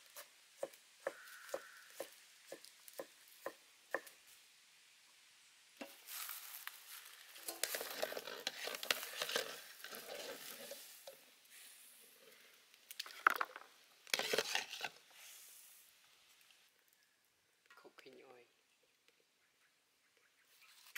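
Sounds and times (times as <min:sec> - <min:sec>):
water boiling hard in a wok: 0:06.1 - 0:12.1
wire skimmer scraping metal wok: 0:07.1 - 0:11.7, 0:14.0 - 0:15.0.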